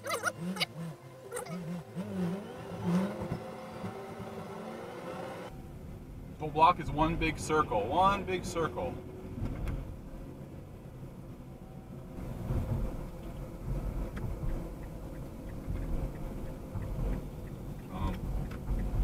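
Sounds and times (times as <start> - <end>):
road and engine rumble in car: 0.0 - 19.0
faint regular ticking: 14.0 - 19.0.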